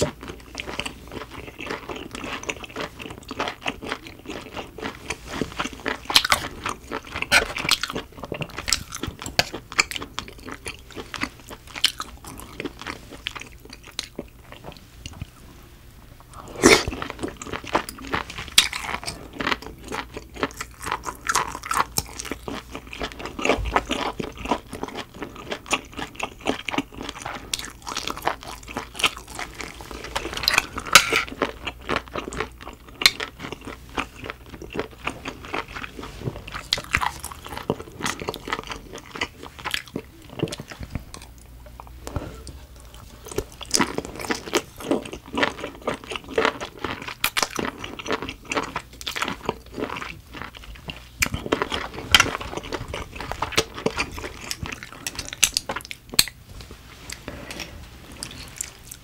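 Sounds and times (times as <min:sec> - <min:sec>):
person chewing: 0:00.0 - 0:15.4, 0:16.2 - 0:59.0.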